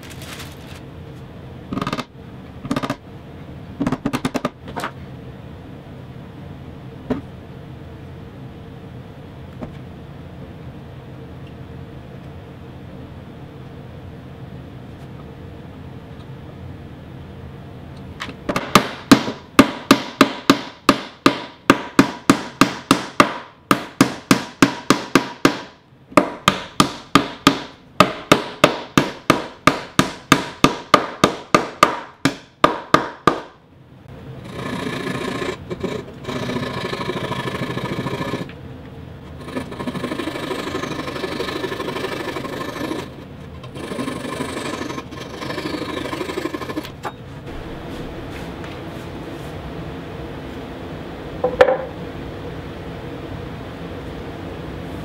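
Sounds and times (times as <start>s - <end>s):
mallet knocking wood: 18.5s - 33.5s.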